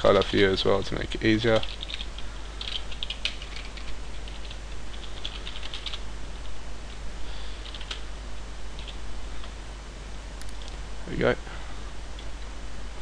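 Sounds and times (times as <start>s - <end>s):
computer keyboard typing: 1.5s - 6.0s, 7.6s - 8.0s, 8.8s - 9.5s.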